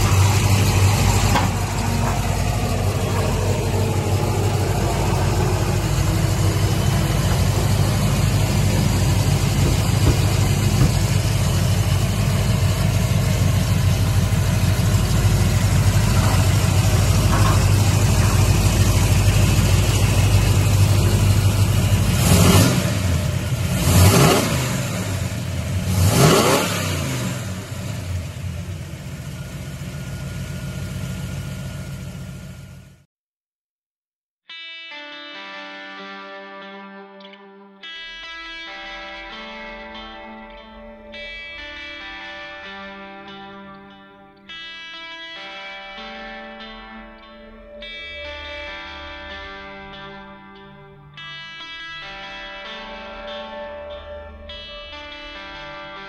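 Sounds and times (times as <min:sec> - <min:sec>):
car engine idling and revving: 0:00.0 - 0:33.0.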